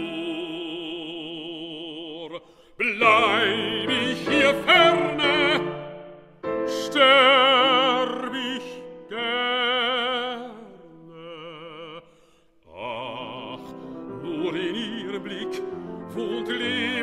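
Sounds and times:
baritone voice singing: 0.0 - 6.0, 6.6 - 17.0
piano accompaniment: 2.8 - 10.7, 13.0 - 17.0.

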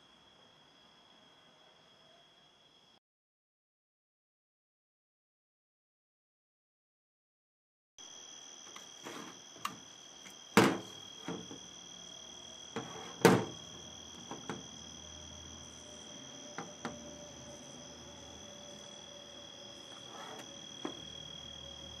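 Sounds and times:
steady high-pitched whine: 9.6 - 22.0
metal casing knocks and clunks: 10.6 - 11.6.

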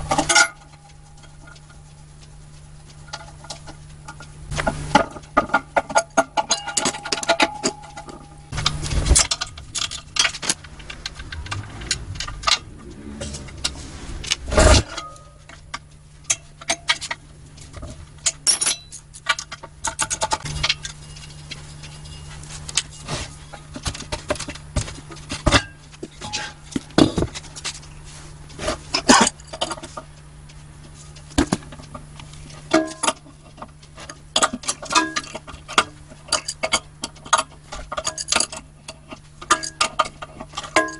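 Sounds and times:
spanner clinking on metal bolts: 5.5 - 8.4, 18.2 - 21.0.

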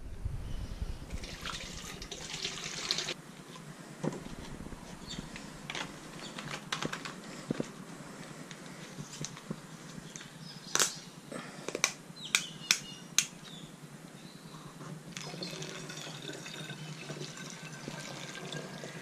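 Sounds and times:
liquid pouring into a funnel: 1.2 - 3.2, 15.2 - 19.0
plastic jugs clicking and knocking: 5.7 - 7.7.

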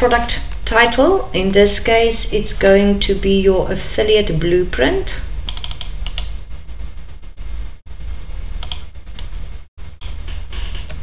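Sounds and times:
steady low hum: 0.0 - 11.0
keyboard and mouse clicks: 5.5 - 6.4, 8.6 - 9.3, 10.0 - 11.0.

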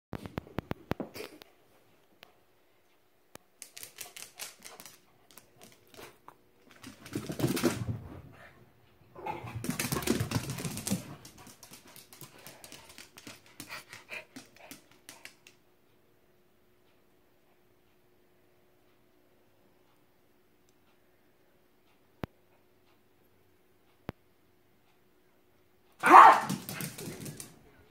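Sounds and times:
dog claws clicking on floor: 3.4 - 7.8, 9.6 - 15.6, 26.0 - 27.6.

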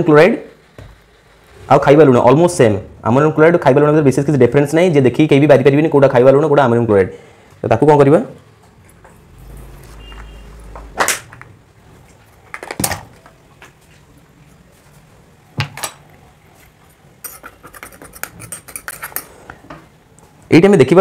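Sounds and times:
metal spatula on porcelain dishes: 17.2 - 19.4.

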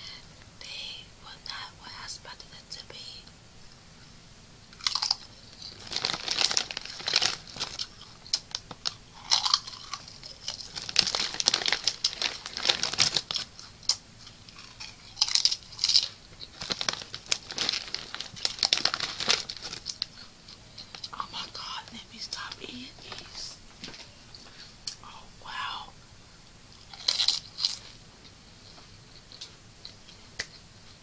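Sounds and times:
plastic bags crinkling: 4.8 - 13.7, 14.6 - 20.2.

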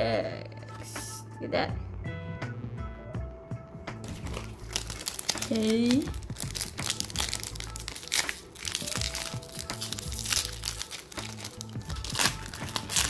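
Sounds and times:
background music: 0.0 - 13.0
foil wrapper crinkling: 4.0 - 13.0.

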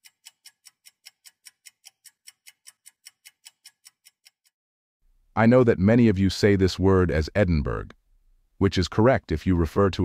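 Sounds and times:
clock ticking: 0.0 - 4.5.

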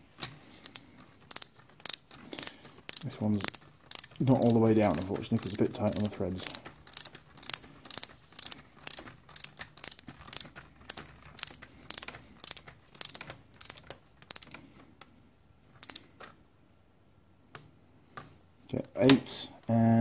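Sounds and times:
ratchet wrench clicking: 0.6 - 14.6, 15.8 - 16.0.

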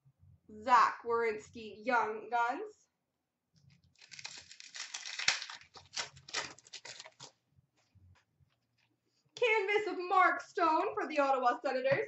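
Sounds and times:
foil wrapper tearing and crinkling: 3.7 - 7.4.

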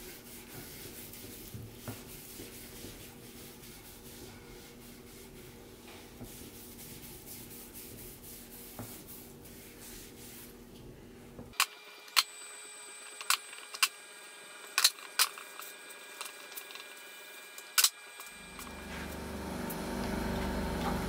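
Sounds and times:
sponge scrubbing wood: 0.0 - 10.5
low hum: 18.2 - 21.0.

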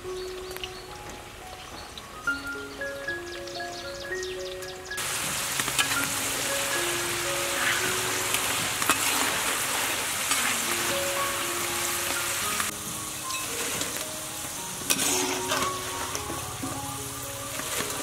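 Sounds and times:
food deep-frying in oil: 5.0 - 18.0.

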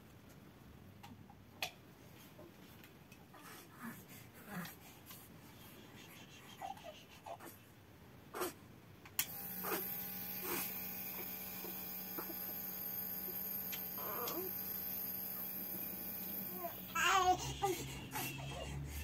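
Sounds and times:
nebulizer humming: 9.2 - 18.6.

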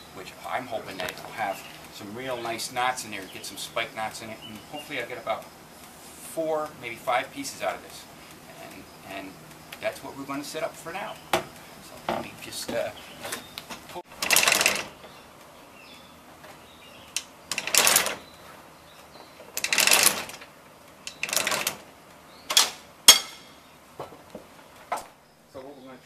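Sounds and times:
metal rattling of levers: 13.2 - 15.1, 17.1 - 18.3, 19.4 - 21.9, 22.5 - 23.5.

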